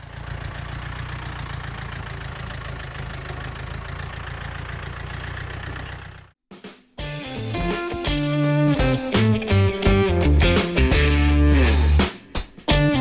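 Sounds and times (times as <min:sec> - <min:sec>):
tractor diesel engine running: 0:00.0 - 0:06.4.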